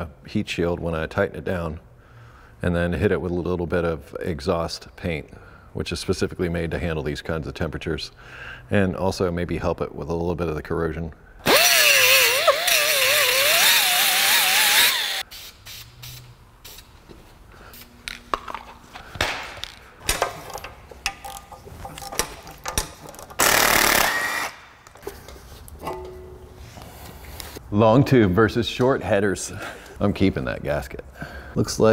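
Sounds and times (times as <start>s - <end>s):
power grinder grinding metal: 11.5s - 15.2s.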